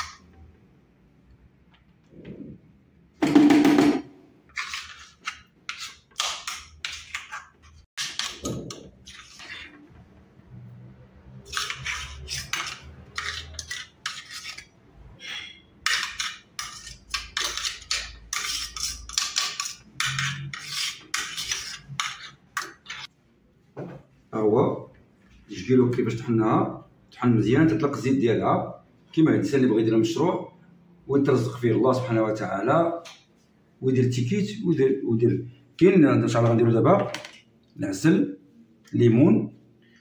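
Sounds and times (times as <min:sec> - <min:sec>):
metal spoon scraping steel bowl: 0:04.5 - 0:09.9, 0:11.3 - 0:23.1.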